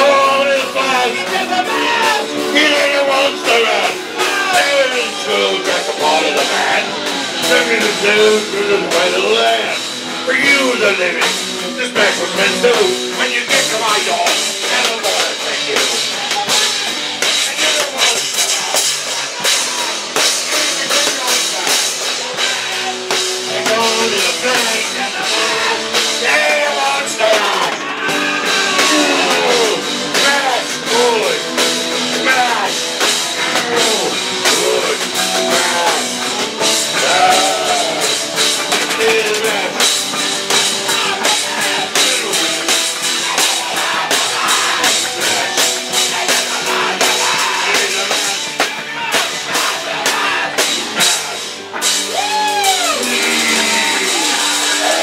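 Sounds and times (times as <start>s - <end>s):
drum kit with cymbals: 0.0s - 55.0s
sliding melody line: 23.4s - 48.6s.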